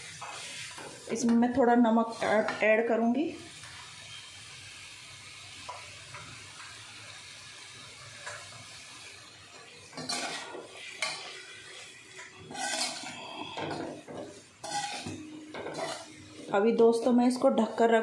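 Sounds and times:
metal spatula scraping a pan: 0.0s - 1.2s, 10.0s - 11.5s, 12.4s - 16.5s.

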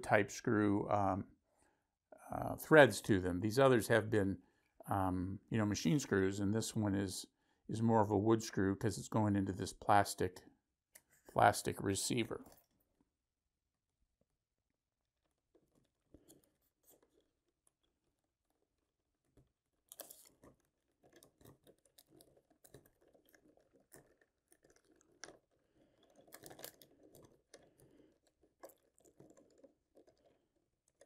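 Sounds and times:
plastic part being handled: 15.2s - 31.0s.

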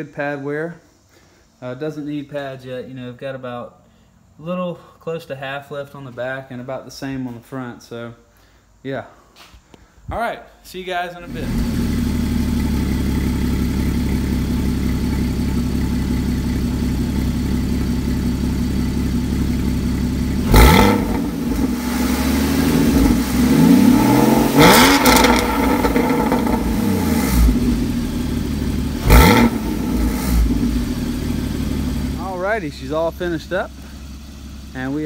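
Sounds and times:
sports car engine idling and revving: 11.3s - 35.0s.

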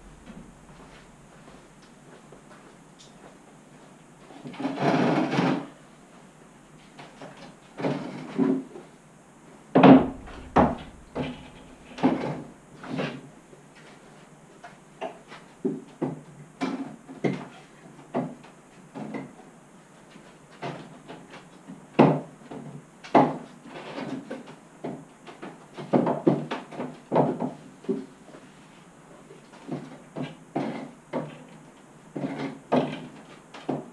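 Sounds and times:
heavy thud: 0.0s - 1.8s, 9.8s - 12.8s
wooden knocks and clunks: 9.8s - 12.5s.

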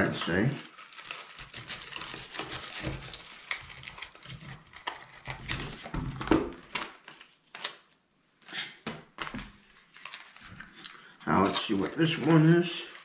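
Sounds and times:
paper rustling and crinkling: 0.2s - 8.0s, 9.2s - 13.0s.

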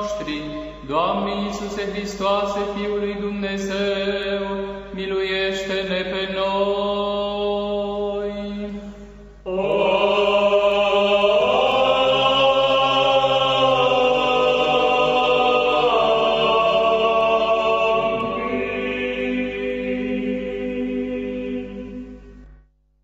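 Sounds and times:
slow chant-like singing: 0.0s - 22.6s
steady drone: 8.8s - 22.6s.

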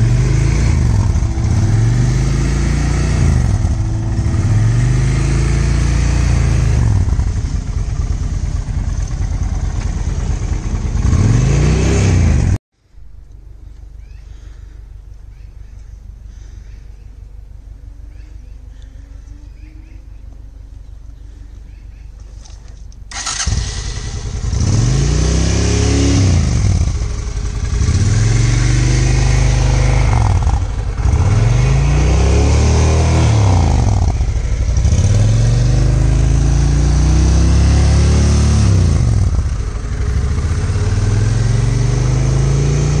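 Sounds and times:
motorcycle engine revving: 0.0s - 12.6s, 23.1s - 43.0s.

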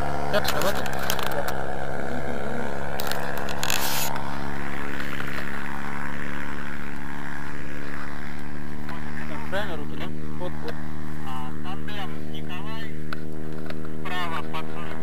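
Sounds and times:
steady engine-like drone: 0.0s - 15.0s.

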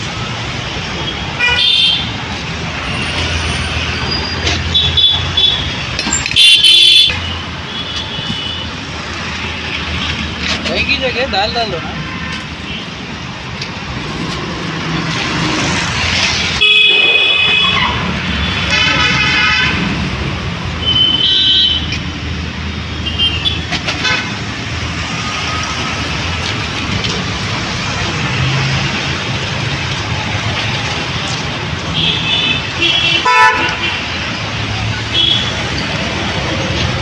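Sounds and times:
road traffic: 0.0s - 37.0s
vehicle horn toots: 6.3s - 7.2s, 32.0s - 34.0s.

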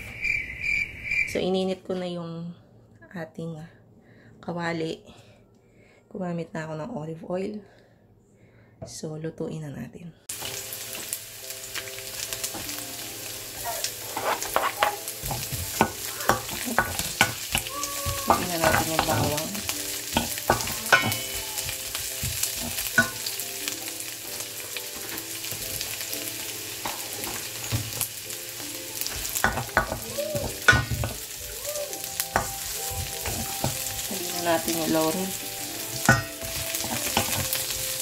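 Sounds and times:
onions sizzling in a pan: 10.3s - 38.0s
wooden spoon scraping a pan: 13.8s - 23.3s, 32.4s - 38.0s.

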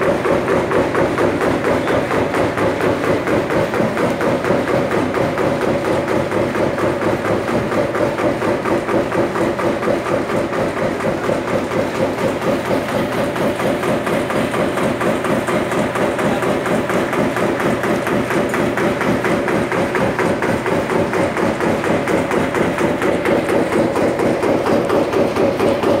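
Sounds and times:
machine clattering: 0.0s - 26.0s.

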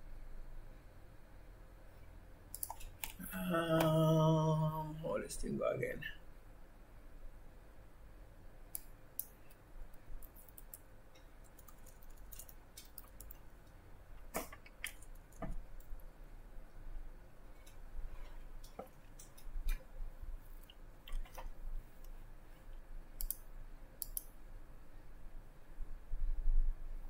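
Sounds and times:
computer mouse clicks: 2.5s - 3.2s, 8.7s - 9.6s, 10.2s - 13.4s, 20.6s - 24.4s
keyboard clicks: 2.5s - 3.2s, 10.2s - 13.4s, 23.2s - 24.3s.

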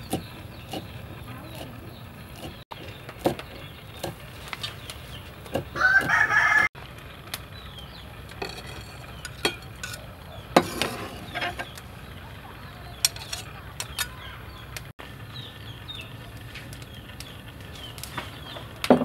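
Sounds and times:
rooster crowing: 5.8s - 6.8s
scraping on wooden board: 10.6s - 11.8s.

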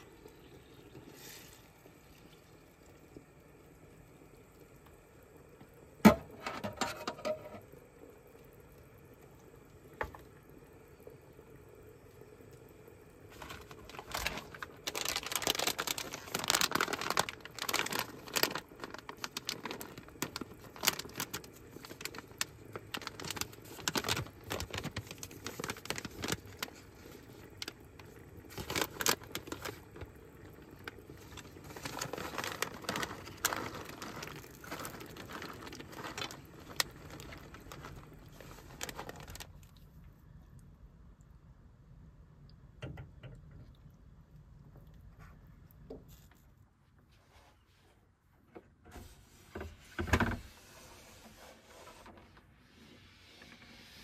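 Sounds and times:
plastic snack packet crinkling: 13.2s - 40.0s.

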